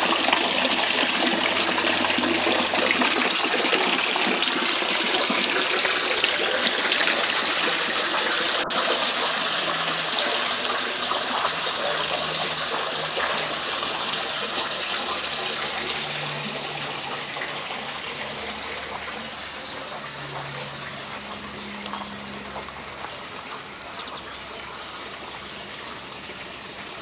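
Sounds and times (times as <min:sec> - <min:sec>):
fountain water splashing: 0:00.0 - 0:27.0
bird chirps: 0:19.4 - 0:22.3.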